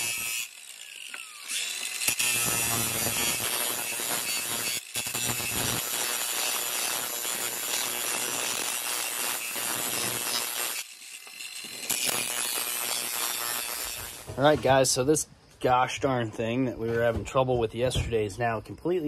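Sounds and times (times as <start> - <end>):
angle grinder cutting metal pipe: 0.0 - 14.7.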